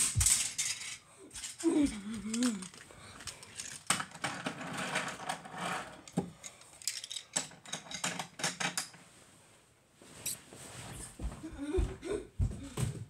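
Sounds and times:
wooden toy trains clattering: 0:00.0 - 0:09.0.

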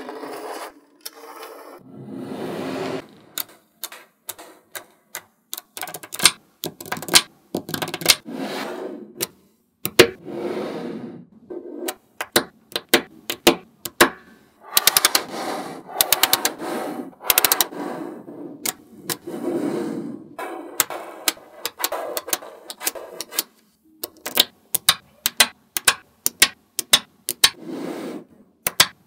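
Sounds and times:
magnetic balls clicking together: 0:03.4 - 0:08.2, 0:11.9 - 0:15.3, 0:16.0 - 0:16.6, 0:17.2 - 0:17.7, 0:20.8 - 0:27.6, 0:28.6 - 0:29.0.

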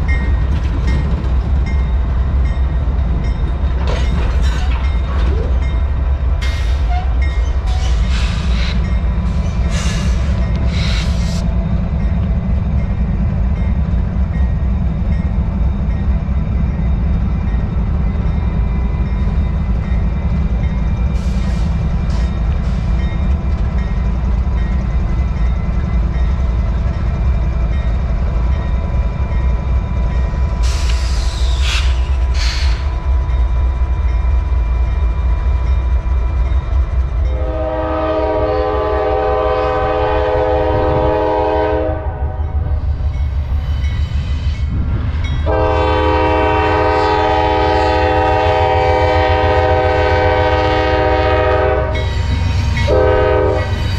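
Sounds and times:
diesel locomotive engine rumble: 0:00.0 - 0:53.9
locomotive air horn: 0:37.3 - 0:42.4, 0:45.4 - 0:53.8.

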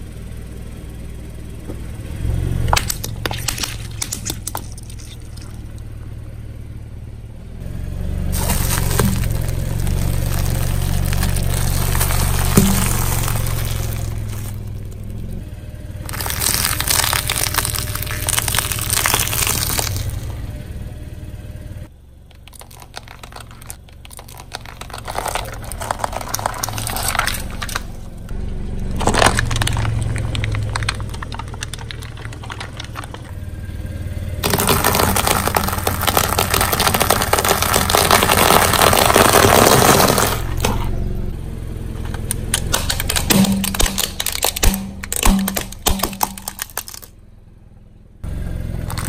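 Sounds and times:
low engine hum: 0:00.0 - 0:49.0
tyre crushing crunchy objects: 0:02.6 - 0:05.9, 0:08.3 - 0:15.4, 0:16.0 - 0:20.4, 0:22.3 - 0:33.4, 0:34.4 - 0:41.1, 0:42.0 - 0:47.1, 0:48.8 - 0:49.0.

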